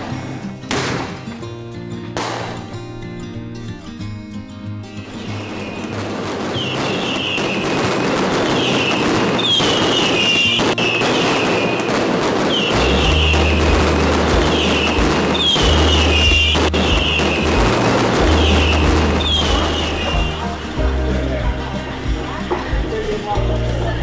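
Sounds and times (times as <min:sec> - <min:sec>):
firecrackers crackling: 0:00.0 - 0:03.8, 0:04.9 - 0:24.0
music with deep bass: 0:12.7 - 0:24.0.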